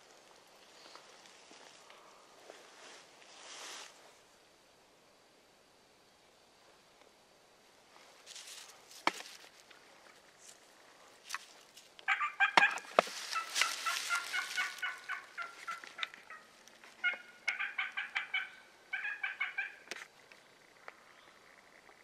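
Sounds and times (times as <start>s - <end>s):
turkeys gobbling: 12.1s - 19.9s.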